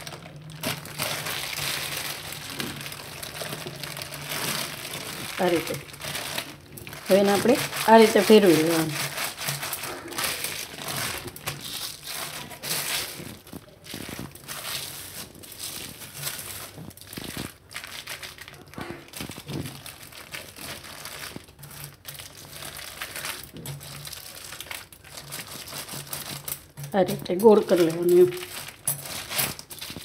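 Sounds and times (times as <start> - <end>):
plastic bag crinkling: 0.0 - 30.0.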